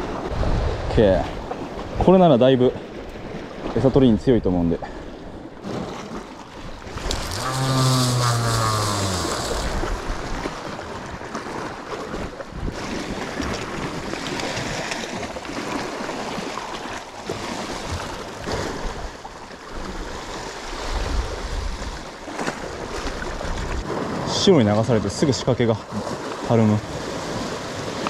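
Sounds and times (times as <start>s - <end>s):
wind rumbling on microphone: 0.0s - 1.0s, 6.6s - 11.3s
waves washing on rocky shore: 5.6s - 19.1s.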